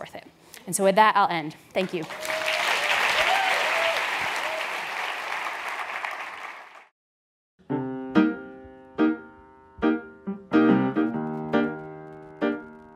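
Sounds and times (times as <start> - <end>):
audience applause: 1.9 - 6.9
piano notes: 7.6 - 12.9.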